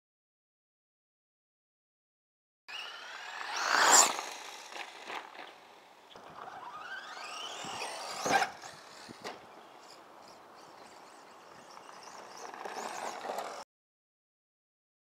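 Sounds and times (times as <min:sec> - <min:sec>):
electric motor whining: 0:02.7 - 0:13.6.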